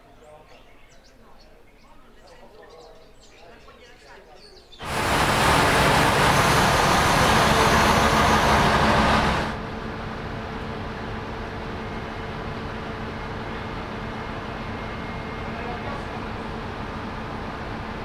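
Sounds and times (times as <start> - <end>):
diesel railcar engine: 4.8 - 18.0
railcar engine idling: 4.8 - 18.0.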